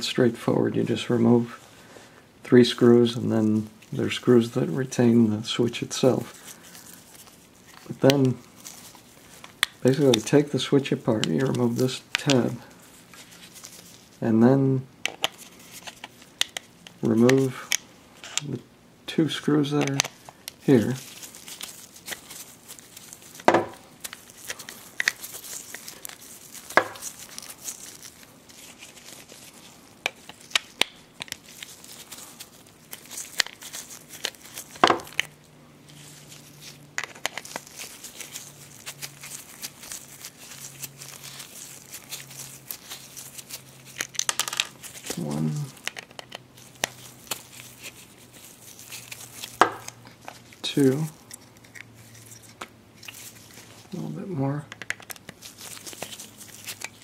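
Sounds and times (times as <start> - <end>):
rustling: 2.8 - 14.3, 15.0 - 18.6, 19.5 - 57.0
plastic parts clicking and tapping: 54.7 - 55.4.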